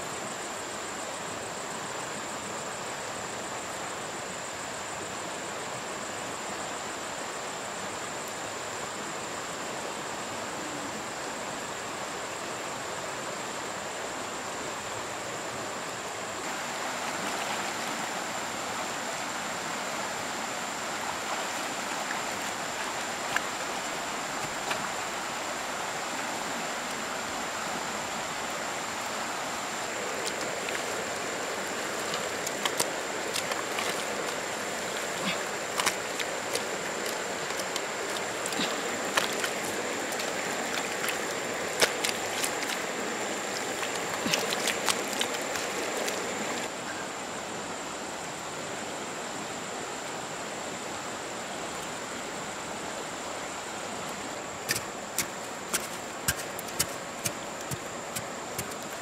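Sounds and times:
river water running: 0:00.0 - 0:59.0
hoe digging wet mud: 0:32.0 - 0:42.9, 0:43.5 - 0:46.2, 0:54.7 - 0:59.0.

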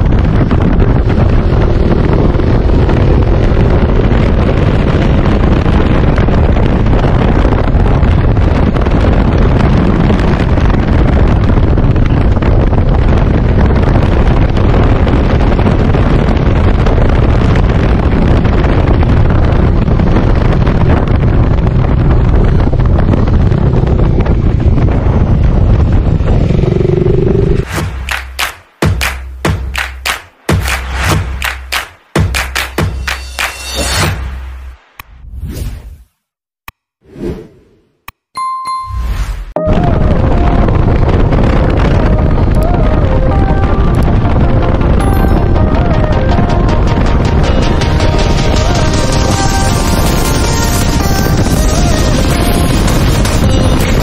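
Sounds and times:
wind buffeting microphone: 0:00.0 - 0:28.0, 0:39.6 - 0:54.0
motorcycle engine hum: 0:00.0 - 0:30.6.

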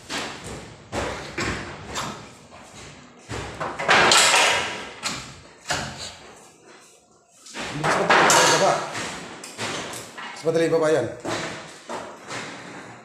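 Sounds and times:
wooden slats knocking on tile floor: 0:07.7 - 0:10.0.

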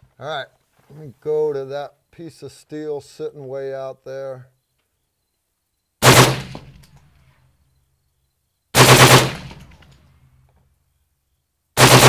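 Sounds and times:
suppressed rifle bursts: 0:06.0 - 0:07.0, 0:08.8 - 0:10.0.

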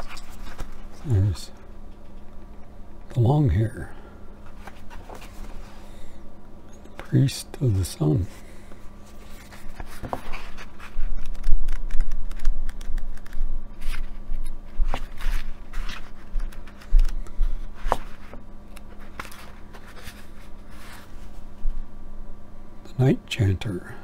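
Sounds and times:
book pages turning: 0:04.4 - 0:05.9, 0:09.0 - 0:21.4
soft bumps handling book: 0:04.4 - 0:05.9, 0:09.0 - 0:21.7.

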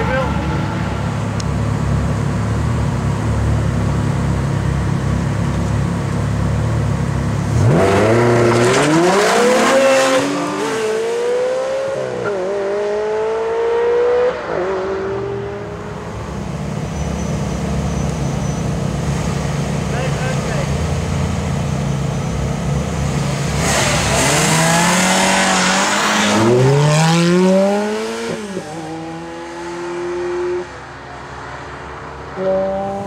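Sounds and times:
sports car engines idling: 0:00.0 - 0:07.7, 0:15.0 - 0:23.6
car accelerating through gears: 0:07.5 - 0:15.7, 0:23.5 - 0:30.7.

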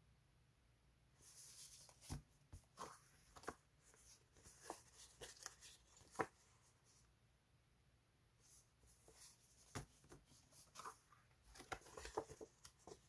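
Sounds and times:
paper sheets rustling and flicking: 0:01.2 - 0:06.6, 0:08.9 - 0:13.0.

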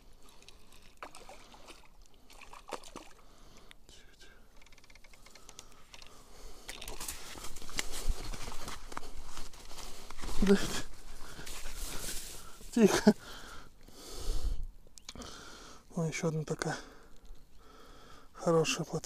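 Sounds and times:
fishing reel clicking: 0:04.5 - 0:06.1
rustling and scraping of grass: 0:07.0 - 0:13.2.

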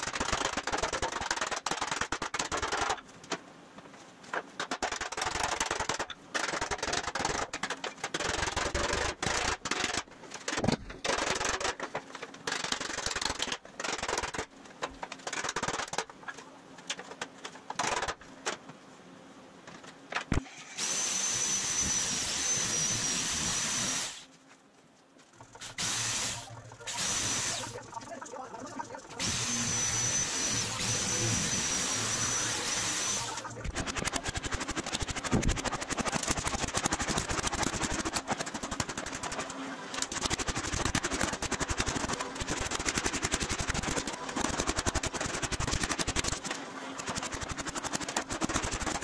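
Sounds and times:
electric metal shear whining: 0:25.6 - 0:34.1
metal sheet rattling: 0:33.2 - 0:49.0.

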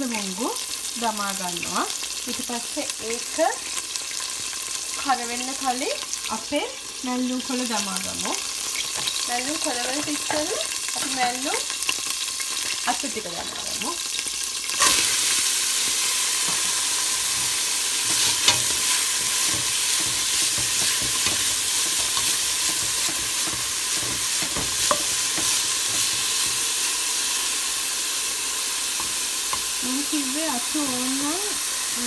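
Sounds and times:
greens sizzling in hot oil: 0:00.0 - 0:32.0
spoon stirring in pot: 0:08.2 - 0:10.5, 0:16.4 - 0:26.8.

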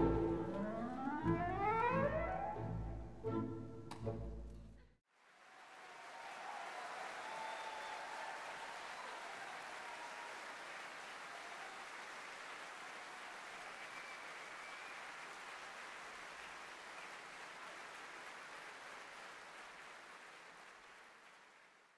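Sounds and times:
audience applauding: 0:05.2 - 0:21.9.

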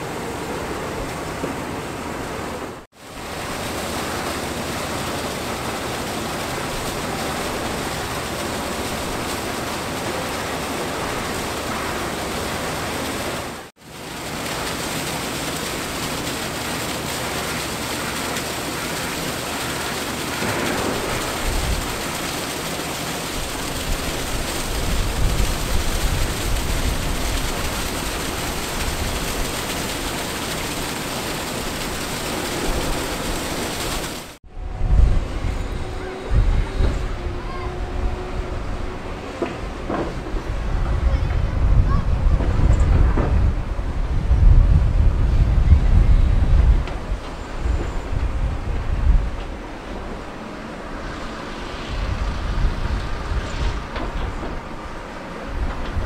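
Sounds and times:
rushing hiss of slurry on screens: 0:02.9 - 0:34.4, 0:49.5 - 0:56.0.

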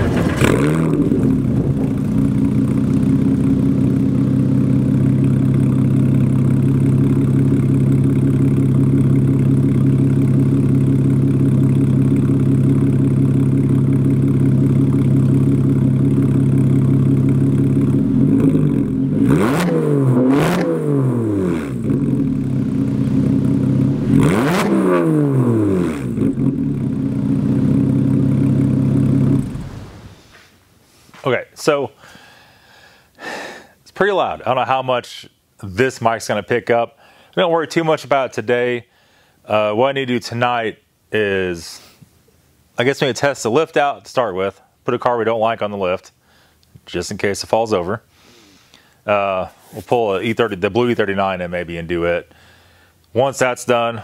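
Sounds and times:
car engine idling and revving: 0:00.0 - 0:30.2.

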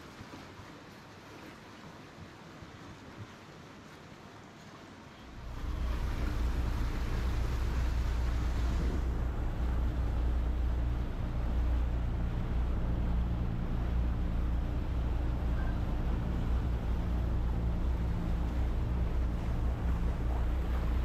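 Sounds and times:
wind and water hissing: 0:00.0 - 0:21.0
motorboat engine droning: 0:05.3 - 0:21.0.

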